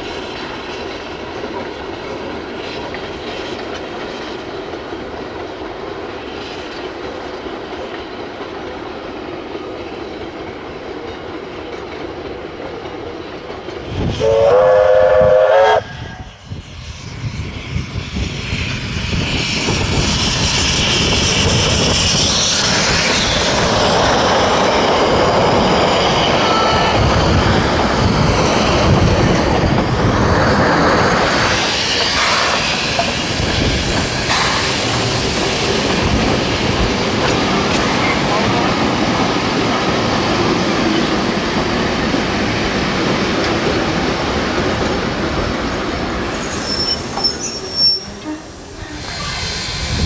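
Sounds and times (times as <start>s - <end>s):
steam train rumbling: 0.0s - 50.0s
steam whistle blast: 14.1s - 16.4s, 46.3s - 50.0s.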